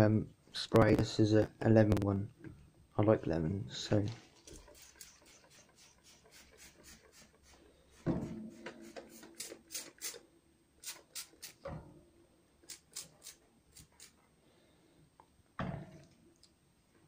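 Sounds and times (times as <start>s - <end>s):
spray bottle squirting: 4.5s - 7.6s, 8.8s - 10.2s, 10.8s - 11.6s, 12.7s - 14.1s.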